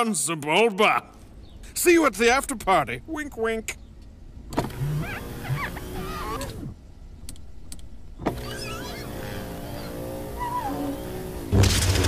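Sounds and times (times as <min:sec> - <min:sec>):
car power window motor: 0:04.5 - 0:06.8, 0:08.2 - 0:12.0.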